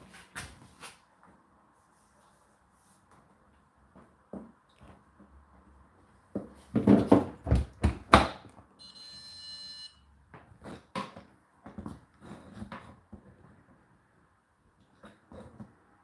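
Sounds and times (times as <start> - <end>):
electronic beep: 8.8 - 10.1.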